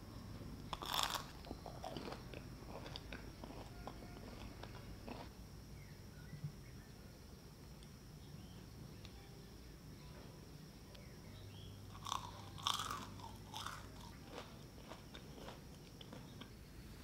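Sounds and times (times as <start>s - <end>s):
fried food crunching: 0.7s - 5.3s, 11.9s - 16.6s.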